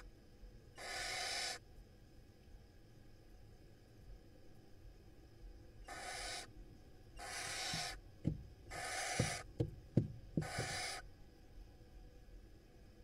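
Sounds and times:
owl chicks hissing: 0.8s - 1.6s, 5.9s - 6.5s, 7.2s - 8.0s, 8.6s - 9.5s, 10.4s - 11.1s
short sharp low knocks: 7.7s - 8.6s, 9.2s - 10.8s.

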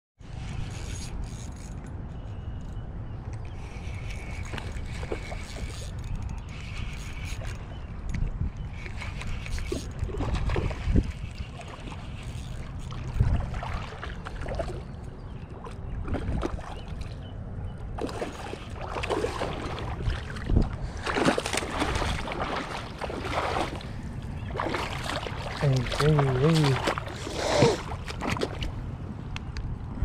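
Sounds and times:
wind rumbling on microphone: 0.2s - 30.0s
water splashing: 8.8s - 17.2s, 18.0s - 28.8s.

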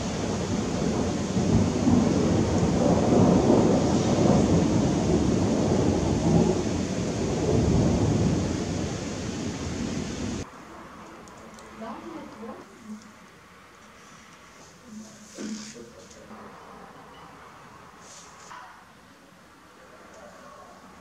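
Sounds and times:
thunder rumbling: 0.0s - 10.5s
rain hiss: 0.0s - 16.3s, 17.8s - 21.0s.

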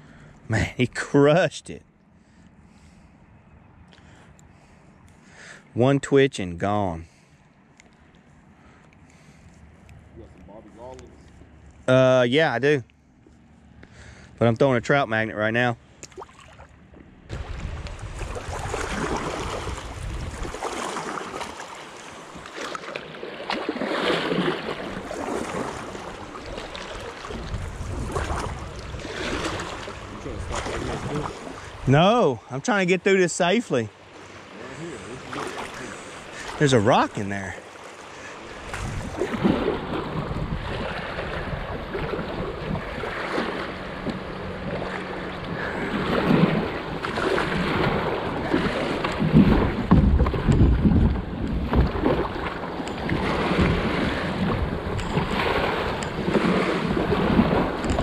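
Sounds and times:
paddle strokes in water: 16.1s - 31.9s, 33.9s - 58.0s
wind on microphone: 17.3s - 20.8s, 25.0s - 31.9s, 38.6s - 43.4s, 45.4s - 58.0s
river current rushing: 17.3s - 50.0s, 51.8s - 58.0s.

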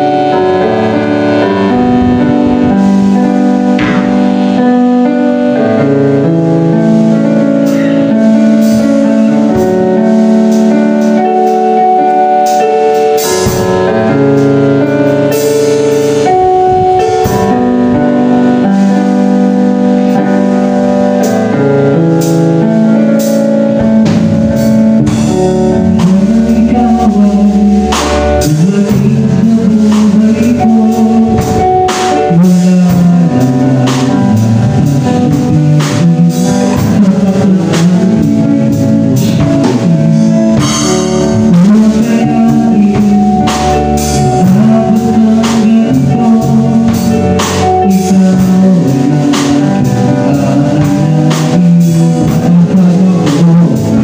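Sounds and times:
bass guitar: 0.0s - 54.0s
drum kit: 0.0s - 54.0s
electric keyboard chords: 0.0s - 54.0s
lead vocal singing: 24.6s - 54.0s.

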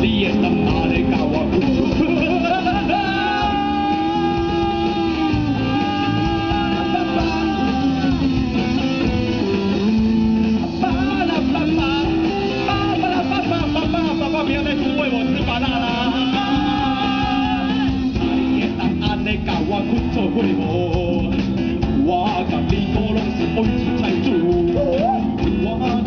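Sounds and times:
drum kit: 0.0s - 26.0s
electric guitars: 0.0s - 26.0s
person singing long held notes: 2.4s - 8.3s.

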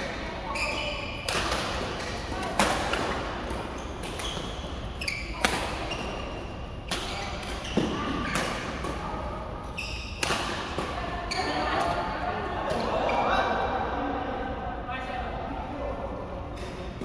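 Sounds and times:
shoes squeaking on court: 0.5s - 1.3s, 3.2s - 10.3s, 11.2s - 11.8s
racket hitting shuttlecock: 0.6s - 9.0s, 10.0s - 12.0s.

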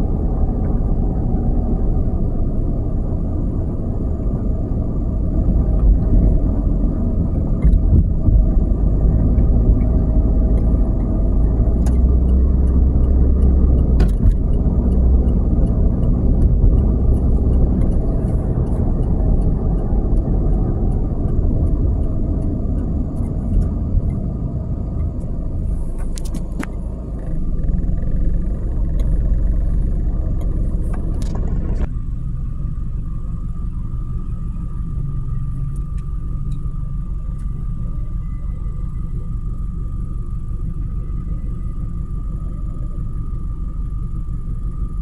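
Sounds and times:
car road and engine rumble: 0.0s - 45.0s.

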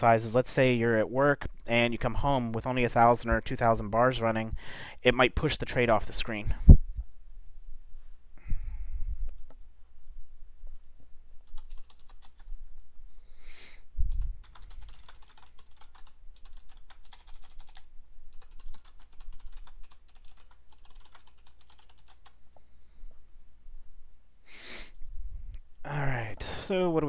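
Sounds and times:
computer keyboard typing: 10.8s - 12.5s, 14.1s - 22.4s.

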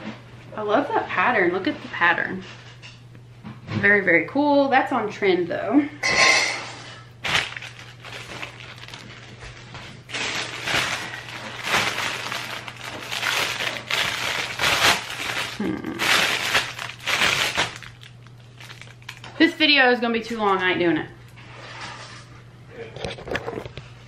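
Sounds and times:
plastic bag crinkling: 7.2s - 19.4s.

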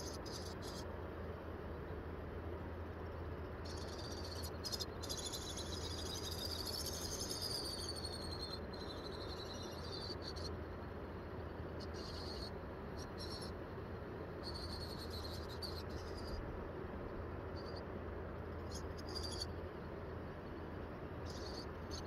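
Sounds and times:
insect trilling: 0.0s - 0.8s, 3.6s - 10.5s, 11.8s - 13.5s, 14.4s - 16.4s, 18.6s - 19.5s, 21.2s - 22.0s
low outdoor background hum: 0.0s - 22.0s.

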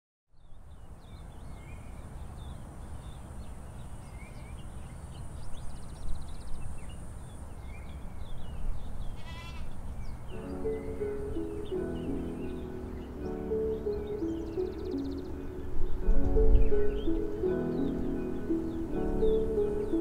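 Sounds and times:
low wind rumble: 0.5s - 20.0s
livestock bleating: 9.2s - 9.8s.

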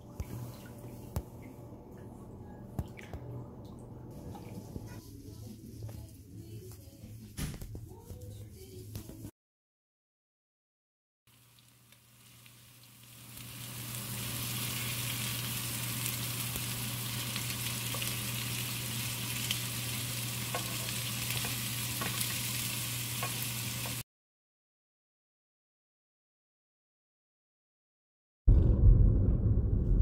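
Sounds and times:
low steady hum: 0.0s - 6.1s
food sizzling in a frying pan: 11.3s - 24.0s.

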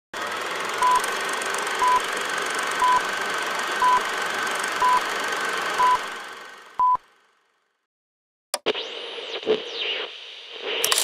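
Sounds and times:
crackling film projector hiss: 0.2s - 6.2s, 9.3s - 11.0s.

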